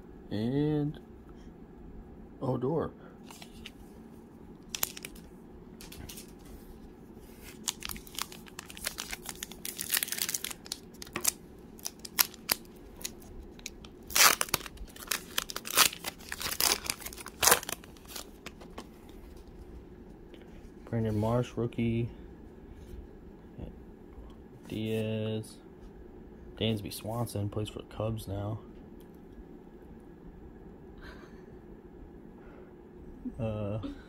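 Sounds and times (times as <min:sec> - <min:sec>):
wrapper crinkling and tearing: 0:04.6 - 0:06.4, 0:07.4 - 0:18.8.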